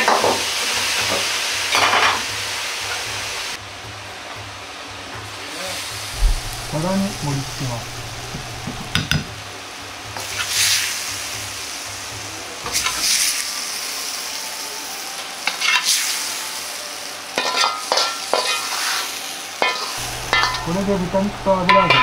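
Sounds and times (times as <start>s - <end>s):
food sizzling in a wok: 0.0s - 22.0s
metal utensil scraping a wok: 17.4s - 19.0s, 19.6s - 20.8s.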